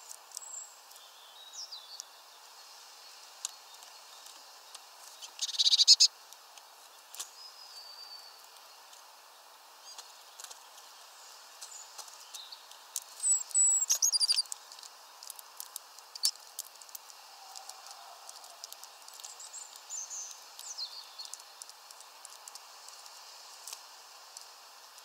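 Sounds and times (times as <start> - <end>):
light ticks: 11.6 - 25.0
thin high bird whistle: 13.2 - 14.5.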